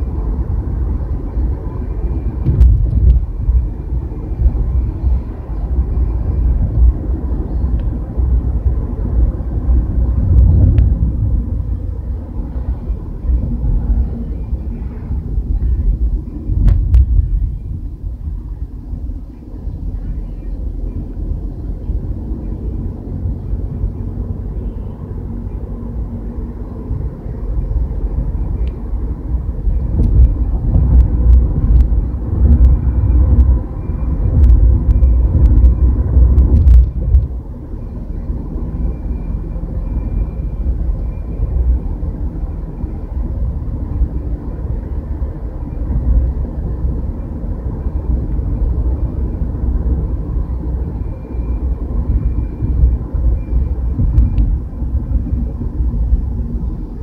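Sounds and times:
car road rumble: 0.0s - 57.0s.

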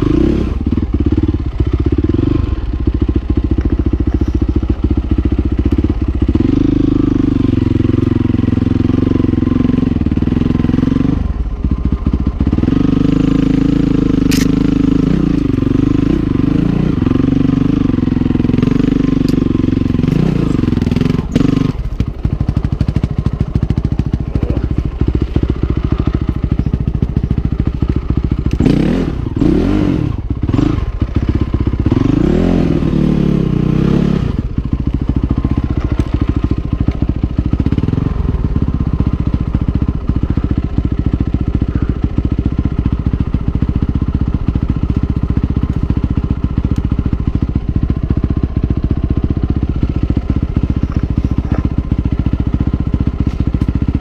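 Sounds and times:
engine revving: 0.0s - 2.7s, 5.6s - 48.0s
motorbike engine chugging: 0.0s - 54.0s.

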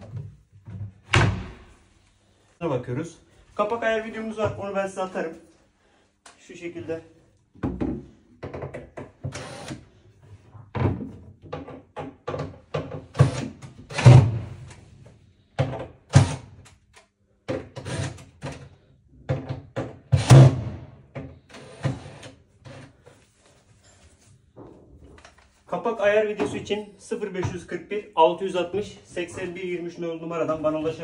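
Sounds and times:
cabinet door knocks and thuds: 7.6s - 9.3s, 10.7s - 13.4s.

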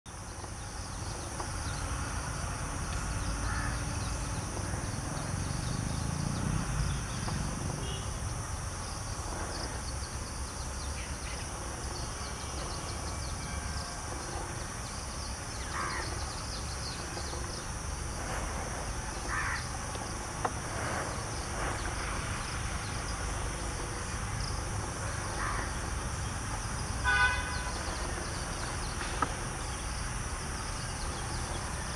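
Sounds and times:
insect drone: 0.1s - 31.9s
bird calls: 15.2s - 17.7s.

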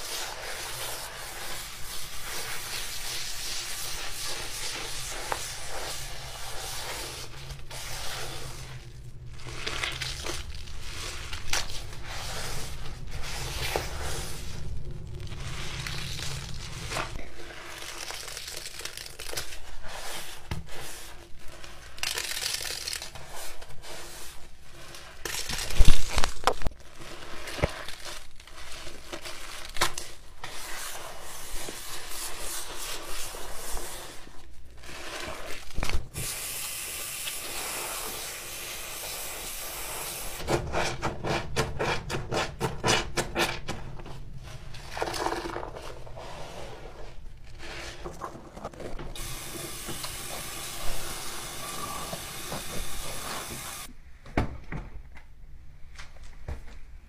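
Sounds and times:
sponge scrubbing and squelching: 0.0s - 26.1s, 26.8s - 53.9s
tap running into basin: 49.2s - 53.9s.

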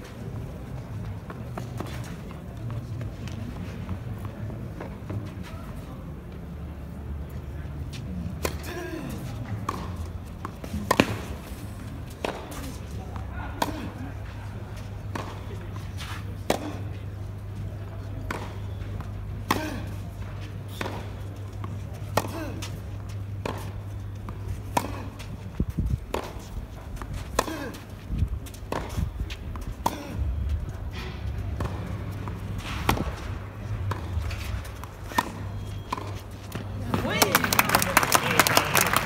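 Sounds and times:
racket striking tennis ball: 8.4s - 14.1s, 20.7s - 23.8s, 24.6s - 37.1s.

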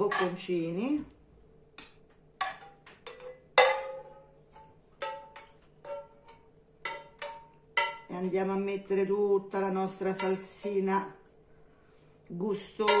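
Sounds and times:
metal spoon clinking on pan: 2.4s - 4.3s, 5.0s - 8.1s, 12.8s - 13.0s.

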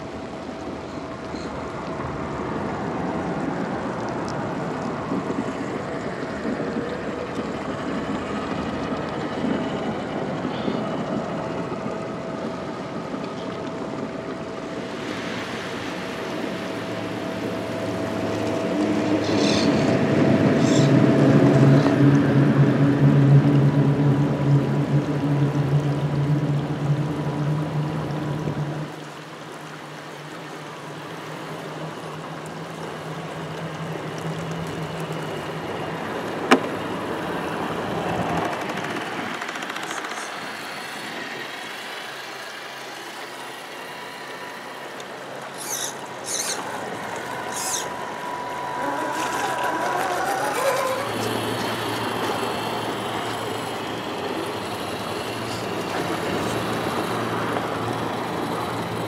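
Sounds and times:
water rushing and splashing: 0.0s - 10.4s, 11.0s - 59.0s
toy truck motors whining: 44.9s - 59.0s
short high squeals: 45.5s - 46.8s, 47.4s - 51.8s.

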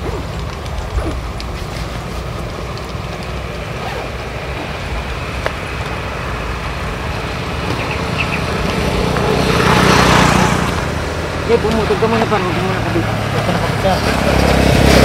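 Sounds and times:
steady low rumble: 0.0s - 9.9s
small motorcycle engine approaching: 0.0s - 15.0s.

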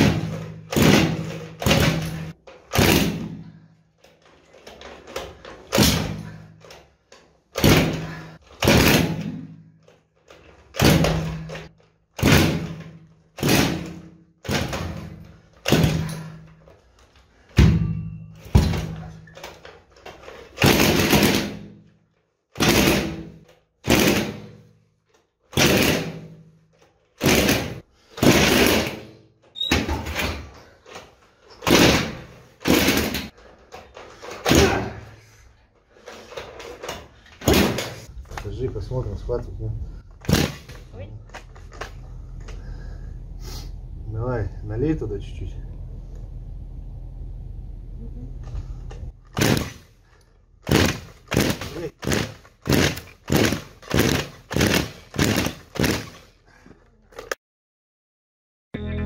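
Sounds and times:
engine spinning with a whir: 42.1s - 49.1s.

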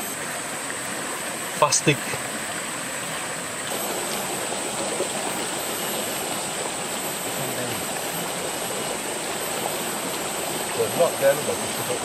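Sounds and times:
stream rushing: 0.0s - 12.0s.

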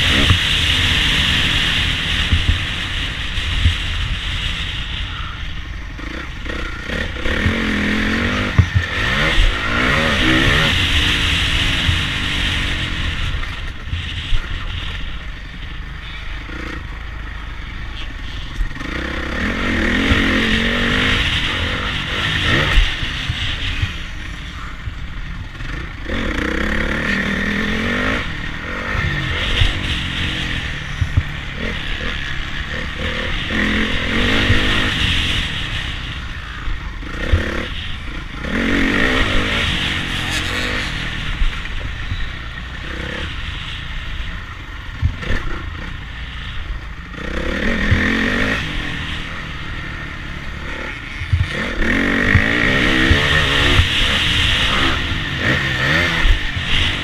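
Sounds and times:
wind on microphone: 0.0s - 15.8s
motocross bike engine revving: 0.0s - 57.0s.

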